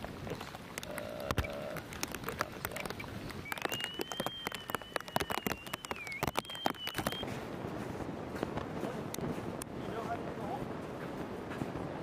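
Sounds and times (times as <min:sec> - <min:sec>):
crunching clicks: 0:00.0 - 0:07.2
metal detector whine: 0:03.4 - 0:07.2.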